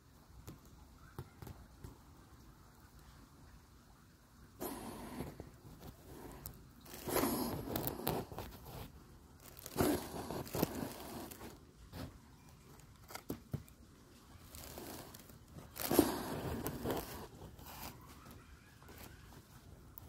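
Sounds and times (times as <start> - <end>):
rustling and crackling handling noise: 4.6 - 20.0.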